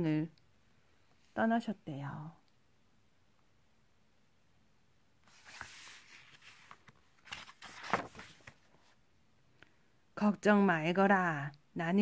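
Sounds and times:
paper page rustling: 5.2 - 9.0.

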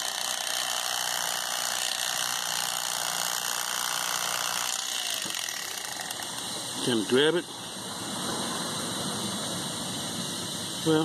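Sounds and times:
electric knife motor buzzing: 0.0 - 7.1.

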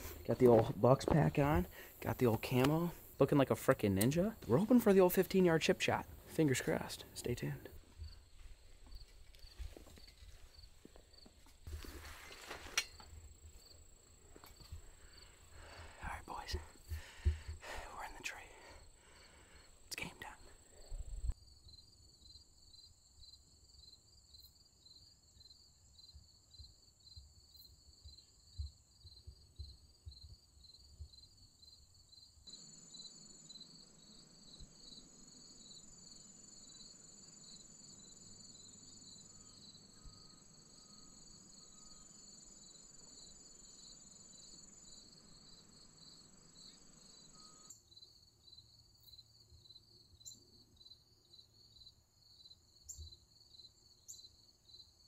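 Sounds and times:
cricket chirping: 0.0 - 11.5, 12.8 - 55.0
soft background hiss: 11.6 - 21.4
insect high trill: 32.5 - 48.1.

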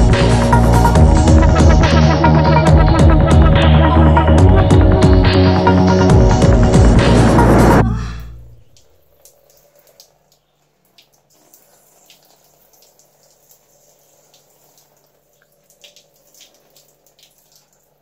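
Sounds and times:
soft drip-like ticks: 8.7 - 18.0.

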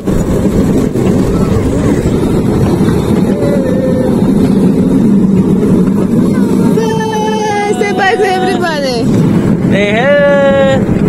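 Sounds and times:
miniature train rumbling and rattling: 0.0 - 11.0.

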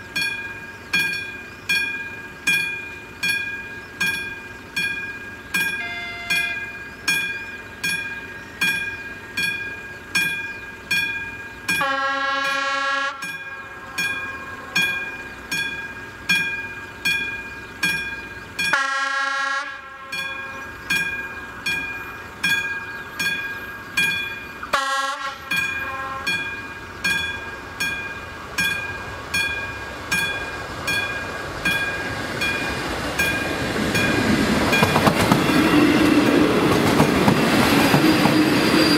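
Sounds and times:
level crossing bell ringing: 1.1 - 8.2
train horn blasts: 5.8 - 6.8, 11.8 - 14.9, 18.7 - 20.6, 24.6 - 26.5.

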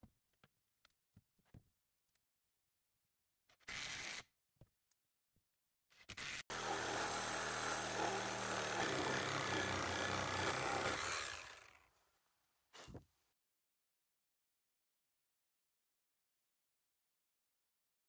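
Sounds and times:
power tool cutting wood: 6.2 - 11.8.

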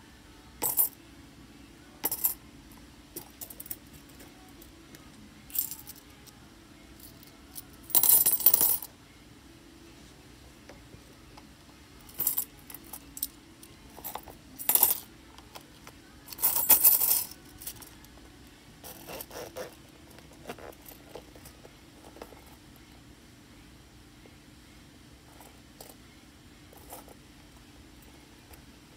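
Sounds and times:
coins clinking in a pouch: 5.5 - 6.1, 7.0 - 8.9, 12.1 - 15.1, 16.3 - 17.9.

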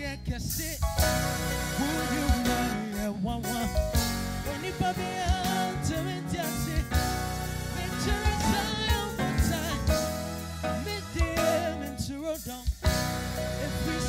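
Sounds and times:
drum kit: 0.0 - 14.0
keyboard: 0.0 - 14.0
person singing: 1.2 - 14.0
electric guitar: 3.9 - 12.1.

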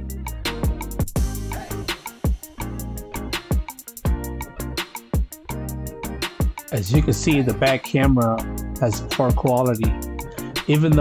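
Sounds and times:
hip-hop beat: 0.0 - 11.0.

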